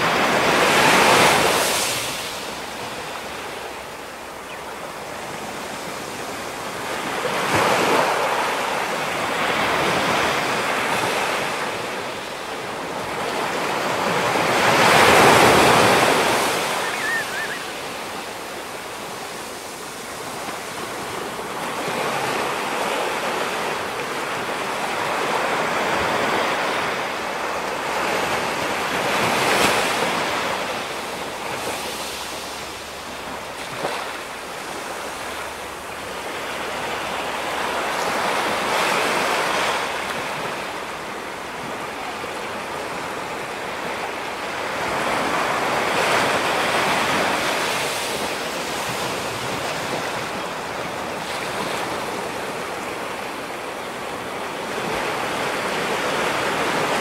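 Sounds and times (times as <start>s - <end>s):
surf breaking on rocky shore: 13.0s - 22.8s.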